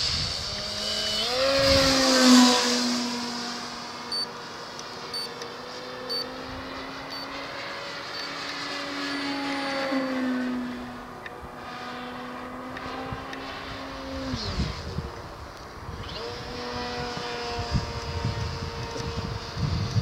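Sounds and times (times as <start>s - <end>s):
model plane motor drone: 0.0s - 20.0s
short high beeps: 5.1s - 5.3s, 6.1s - 6.3s.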